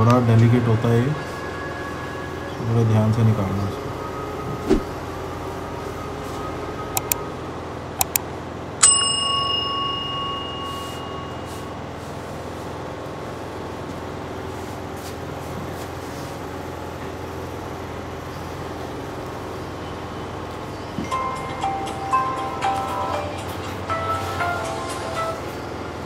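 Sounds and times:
background hum: 0.0 - 15.0
quick clicks: 7.0 - 7.2, 8.0 - 8.2
bright bell ding: 8.8 - 11.8.

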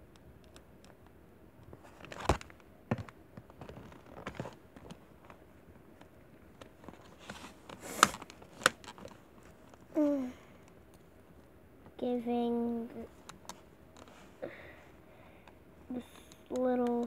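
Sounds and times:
person humming: 10.0 - 10.4.

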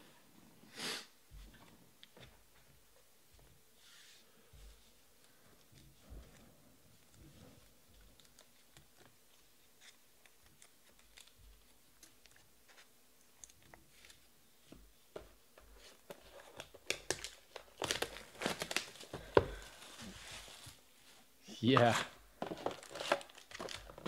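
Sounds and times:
shrink wrap tearing and crinkling: 9.8 - 12.4, 16.5 - 19.1, 21.8 - 24.0.

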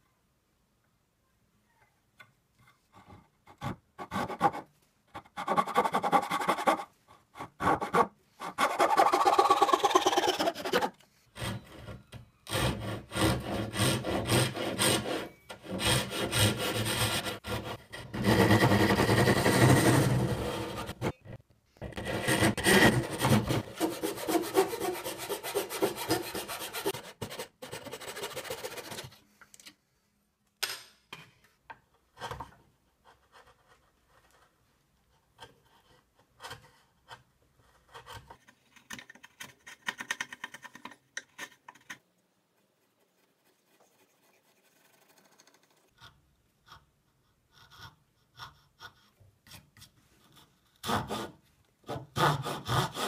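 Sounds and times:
hand saw cutting wood: 12.5 - 21.1, 21.9 - 29.1, 50.8 - 53.0.

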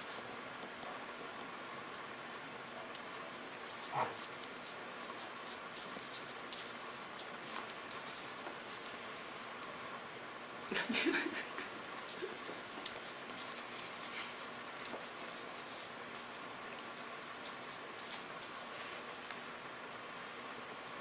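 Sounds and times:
ink brush scratching on paper: 1.8 - 8.9, 12.1 - 19.2.

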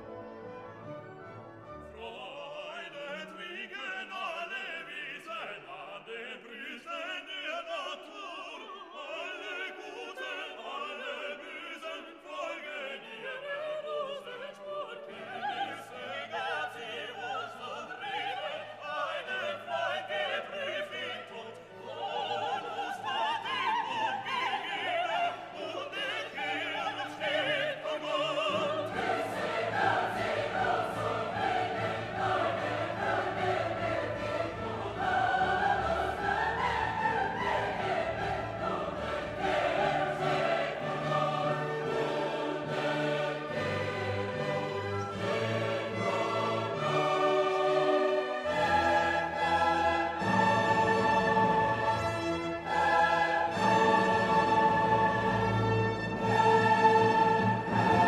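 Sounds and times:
orchestra playing: 0.0 - 2.4, 27.4 - 58.0
operatic singing: 1.6 - 58.0.

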